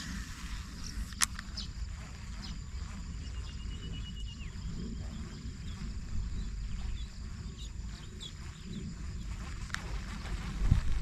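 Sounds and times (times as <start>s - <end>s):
faint high whine: 0.0s - 11.0s
wind rumbling on microphone: 0.0s - 11.0s
sharp click: 1.0s - 1.5s.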